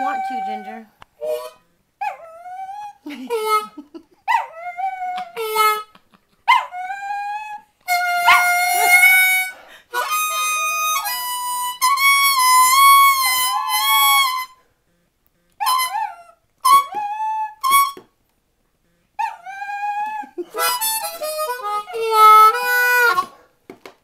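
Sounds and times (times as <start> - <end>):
blues harmonica bent notes: 0.0 - 1.7, 5.3 - 6.0, 7.9 - 14.6, 18.8 - 23.4
dog howling: 6.5 - 10.6, 15.6 - 17.9, 19.2 - 20.7.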